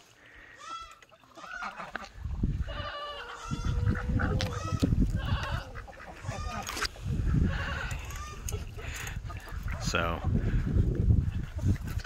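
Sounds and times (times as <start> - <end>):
chickens squawking and clucking: 0.2 - 12.0
low rumbling microphone noise: 3.5 - 12.0.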